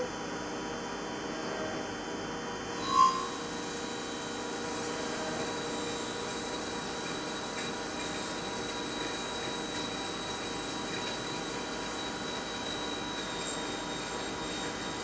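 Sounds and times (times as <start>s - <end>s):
thin high whine: 2.6s - 15.0s
machine drilling steel: 4.7s - 15.0s.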